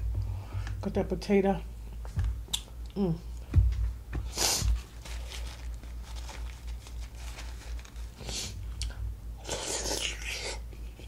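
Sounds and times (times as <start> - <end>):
potato bitten and slurped: 8.3 - 10.6.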